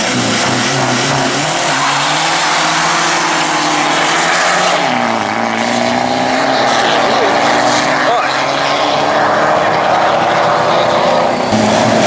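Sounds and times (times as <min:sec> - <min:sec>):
car engines revving hard: 0:00.0 - 0:12.0.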